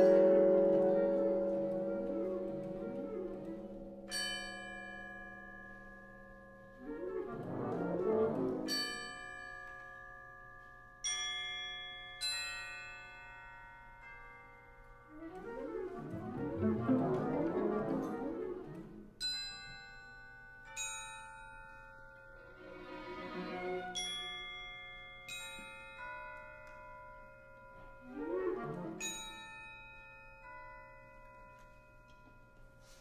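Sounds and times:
mallet percussion chords: 0.0s - 4.9s
chamber ensemble music: 0.0s - 5.9s, 6.6s - 9.8s, 14.9s - 20.0s, 22.4s - 26.0s, 27.7s - 31.0s.

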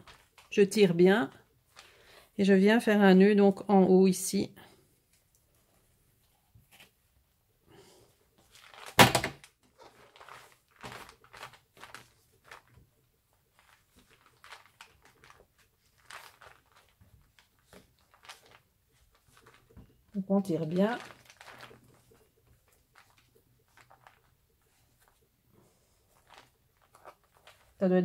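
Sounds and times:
paper rustling and scraping: 8.4s - 9.1s, 9.7s - 27.8s.

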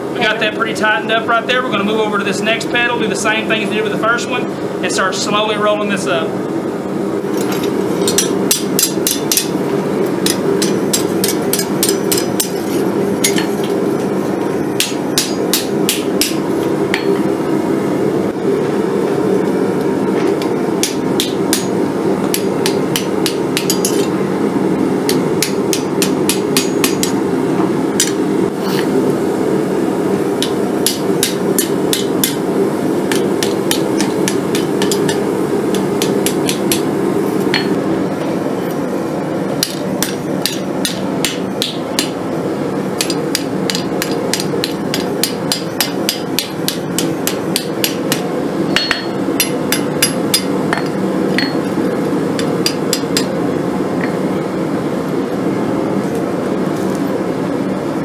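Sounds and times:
hammer striking hot steel on anvil: 7.4s - 9.6s, 10.2s - 13.8s, 14.8s - 17.3s, 20.4s - 24.1s, 25.0s - 27.2s, 28.0s - 28.2s, 30.4s - 32.5s, 33.1s - 36.9s, 37.5s - 37.8s, 39.6s - 42.2s, 43.0s - 51.8s, 52.4s - 53.4s.

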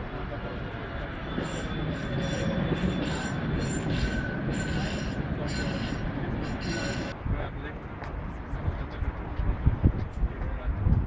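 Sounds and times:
city traffic rumble: 0.0s - 11.0s
tram wheels squealing: 0.1s - 7.2s.

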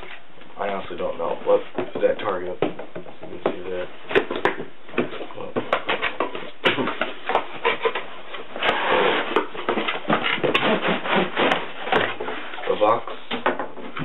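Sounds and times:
cardboard tray scraping out: 7.6s - 12.8s.

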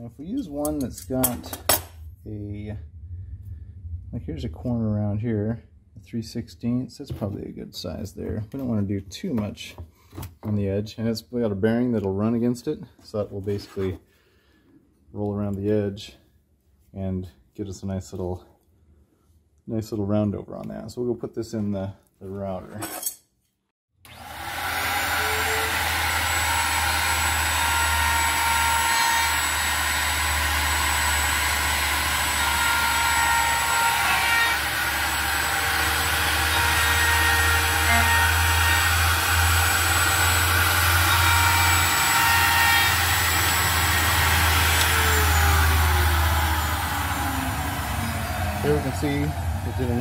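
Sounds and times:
router table whining: 24.1s - 50.0s.

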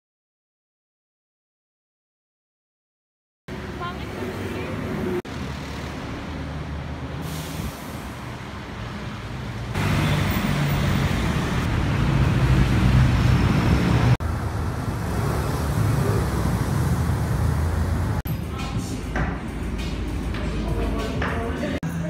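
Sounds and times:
vehicles passing: 3.5s - 22.0s
low engine hum: 9.8s - 18.2s.

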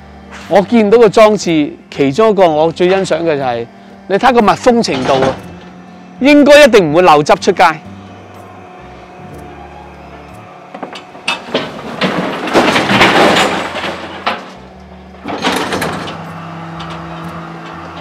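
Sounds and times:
compactor machinery hum: 0.0s - 18.0s
rubbish clattering into hopper: 10.7s - 18.0s.

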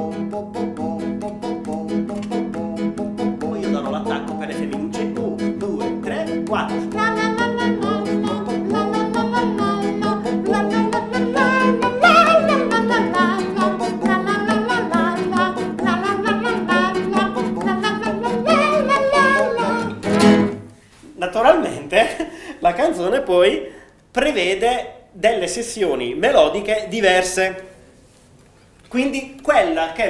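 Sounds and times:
men singing together: 0.0s - 20.0s
classical guitars strumming: 0.0s - 20.8s.

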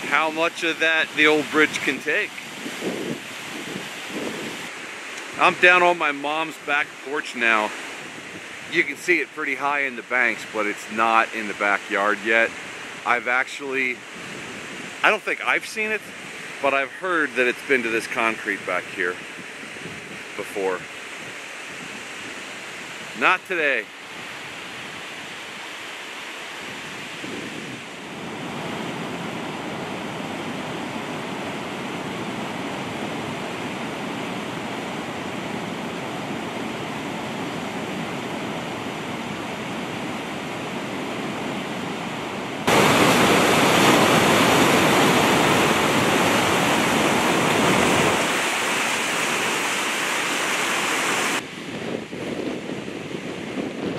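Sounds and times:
floodwater rushing: 0.0s - 51.7s.

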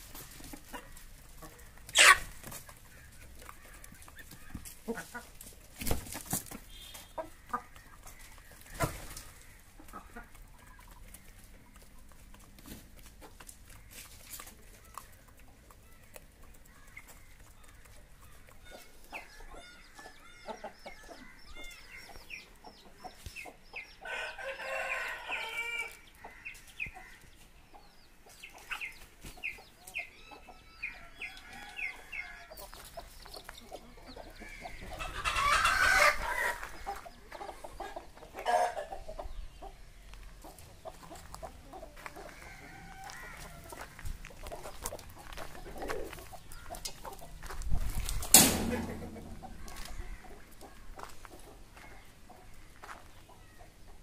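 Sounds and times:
chicks peeping: 0.0s - 54.0s
hens clucking: 0.0s - 54.0s
rooster crowing: 24.1s - 25.9s, 42.3s - 44.0s
loud thump: 48.3s - 49.7s.

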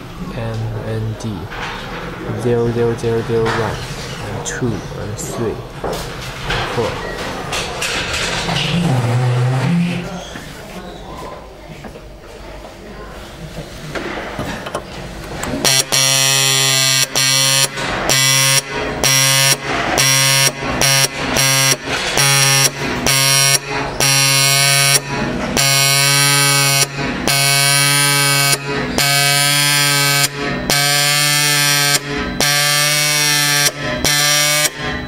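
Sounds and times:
marking pin hammering metal buzz: 15.4s - 35.0s.

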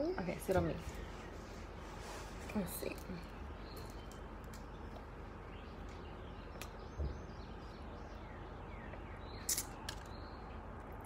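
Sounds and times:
quiet outdoor background noise: 0.0s - 11.0s.

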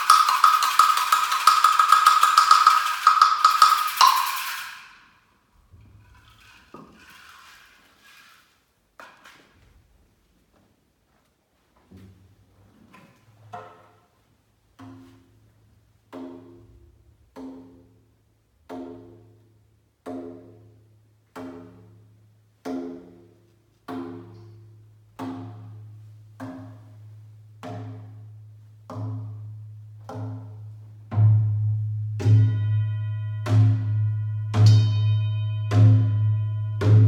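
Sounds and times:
gong struck with mallet: 32.2s - 37.0s
singing bowl struck: 32.2s - 37.0s.

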